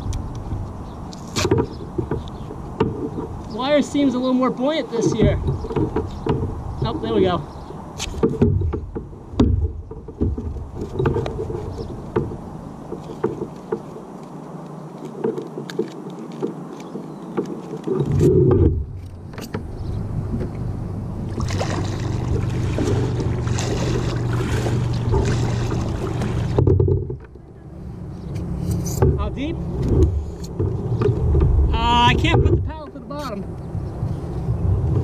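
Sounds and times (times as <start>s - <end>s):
water sounds: 0.0s - 35.0s
knocks against boat hull: 1.4s - 3.4s, 5.1s - 7.4s, 8.0s - 13.9s, 22.7s - 27.3s, 29.0s - 32.8s
low hum: 18.0s - 35.0s.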